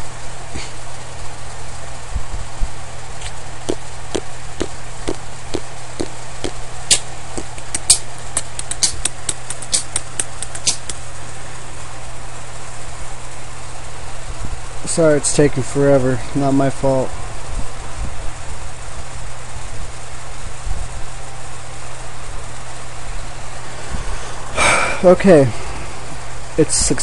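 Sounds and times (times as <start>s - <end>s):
low hum with hiss: 0.0s - 27.0s
sharp clicks: 4.6s - 11.0s.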